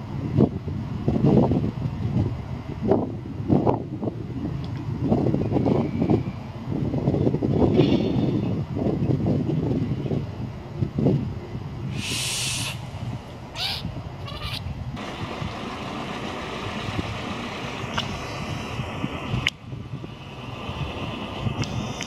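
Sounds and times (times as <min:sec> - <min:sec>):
distant traffic rumble: 0:08.4 - 0:22.0
short hiss: 0:11.9 - 0:13.5
brief calls: 0:11.9 - 0:15.2.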